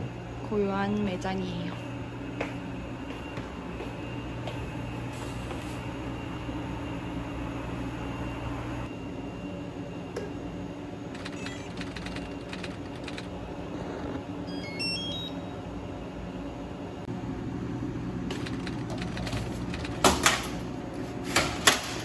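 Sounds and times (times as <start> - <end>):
steady low hum: 0.0 - 22.0
short electronic beeps: 14.5 - 15.5.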